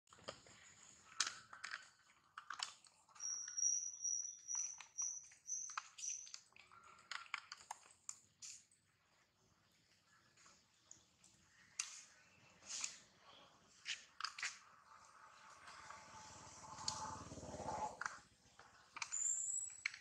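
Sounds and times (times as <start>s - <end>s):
sharp chirps and clicks: 2.5s - 6.6s, 13.8s - 20.0s.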